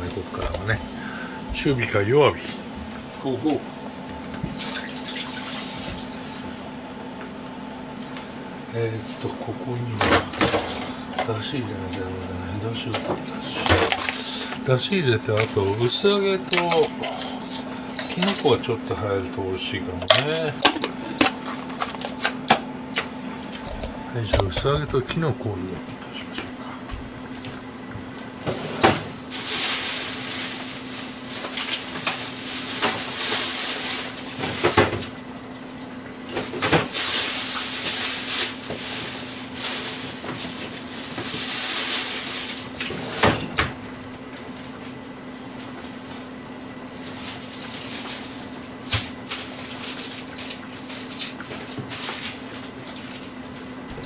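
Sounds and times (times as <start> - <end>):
steady low hum: 0.0 - 54.0
kitchen tap running: 9.8 - 25.7.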